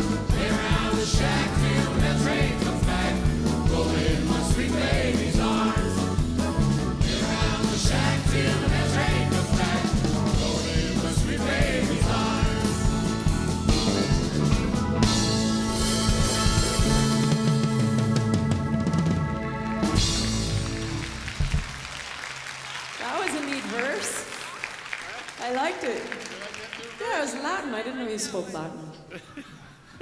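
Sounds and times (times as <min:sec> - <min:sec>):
voices singing together: 0:00.0 - 0:14.8
live country band: 0:00.0 - 0:21.9.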